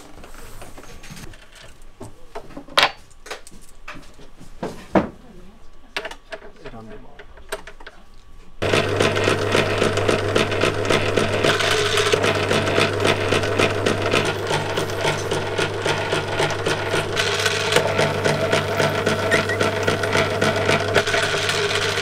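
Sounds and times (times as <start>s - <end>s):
roller machine humming and clattering: 8.6s - 22.0s.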